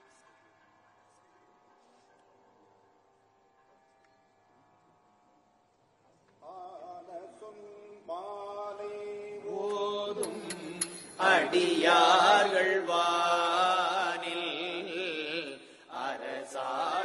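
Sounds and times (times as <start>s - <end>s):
group of men chanting a hymn: 6.6s - 17.0s.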